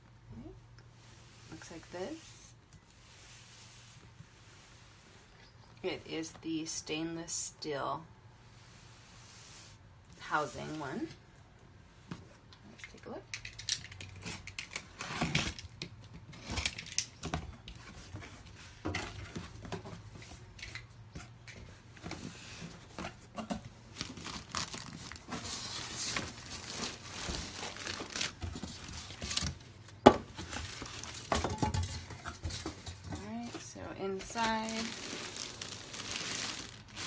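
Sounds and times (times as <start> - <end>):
packing tape tearing: 13.3 - 17.2, 23.9 - 29.6, 34.3 - 37.0
plastic wrap crinkling: 23.8 - 32.2, 33.1 - 37.0.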